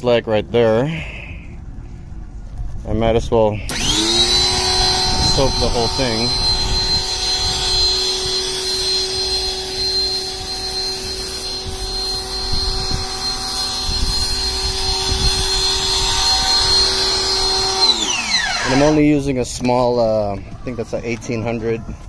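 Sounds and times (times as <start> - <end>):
pressure washer whining: 3.7 - 19.3.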